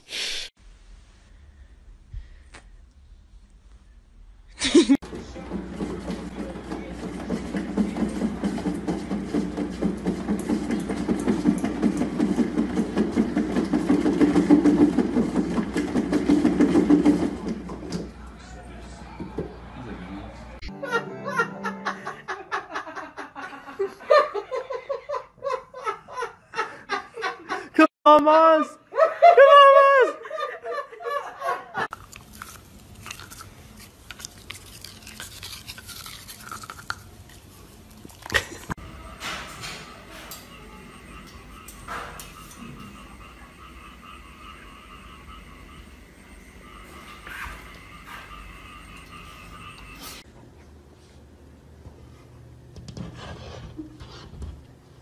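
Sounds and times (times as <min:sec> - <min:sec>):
cat exercise wheel spinning: 0:05.0 - 0:18.0
dog chewing plastic toothbrush: 0:31.9 - 0:38.7.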